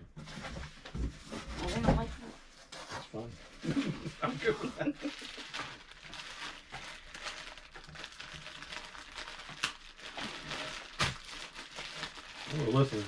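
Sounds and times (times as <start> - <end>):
plastic bag crinkling: 3.4 - 13.0.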